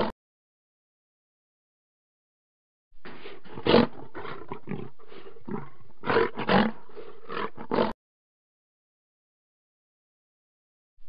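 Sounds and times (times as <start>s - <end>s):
lion roaring: 3.1s - 8.0s.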